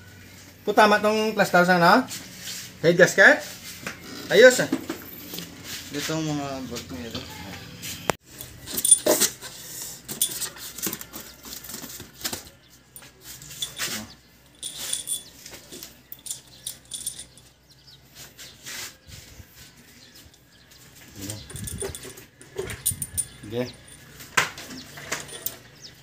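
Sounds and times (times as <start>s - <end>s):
metal bolts clinking in hands: 8.4s - 11.3s, 13.0s - 17.5s, 21.3s - 26.0s.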